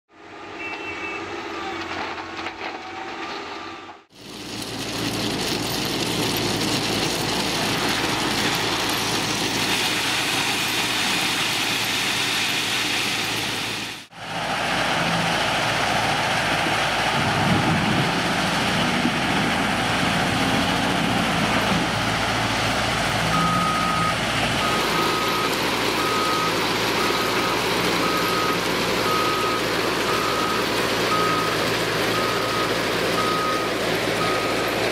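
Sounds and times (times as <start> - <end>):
diesel engine and machinery din: 0.1 - 34.9
reverse alarm beeping: 0.5 - 1.8, 23.3 - 34.8.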